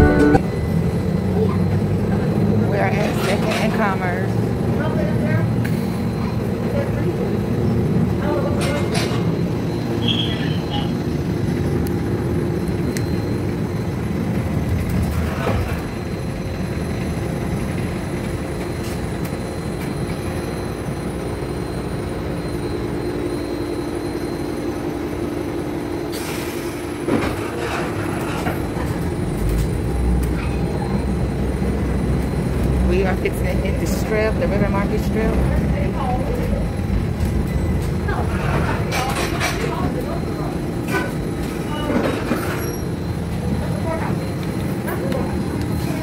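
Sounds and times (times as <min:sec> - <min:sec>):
low hum: 0:00.0 - 0:01.1
streetcar wheels rumbling on rail: 0:00.0 - 0:46.0.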